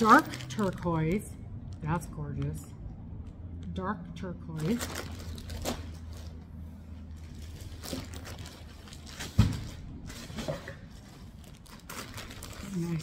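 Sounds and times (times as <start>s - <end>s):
plastic wrapping crinkling: 0.0s - 1.9s, 4.6s - 13.0s
low steady hum: 0.0s - 13.0s.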